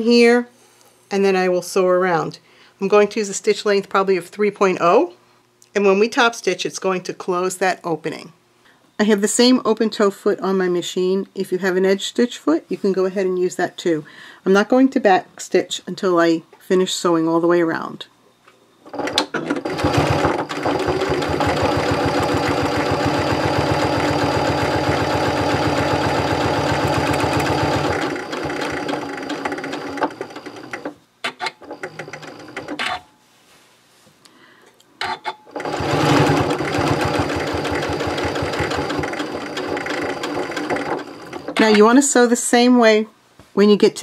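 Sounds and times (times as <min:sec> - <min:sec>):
sewing machine stitching: 0:18.9 - 0:33.0, 0:35.0 - 0:41.9
sewing machine clicks: 0:19.0 - 0:32.9.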